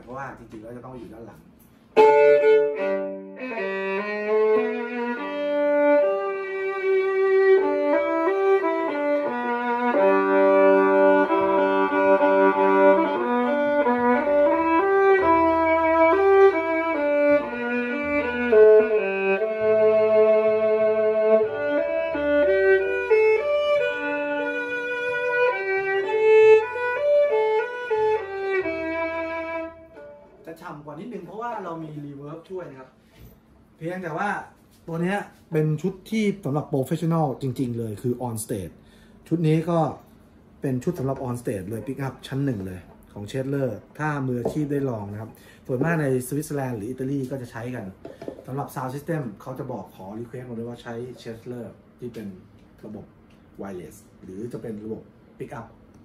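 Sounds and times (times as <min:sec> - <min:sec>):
violin melody: 0:01.9 - 0:30.6.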